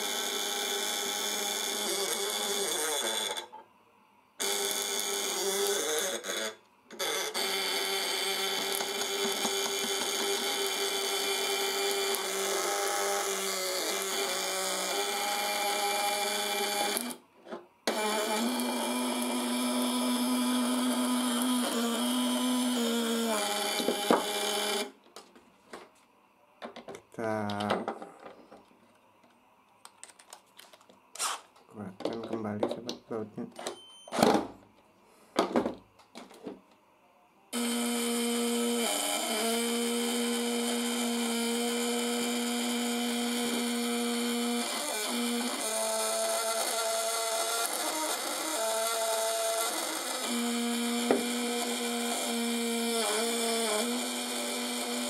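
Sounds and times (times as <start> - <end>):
contact breaker buzzing: 4.4 - 17.2, 17.9 - 25.0, 37.6 - 55.0.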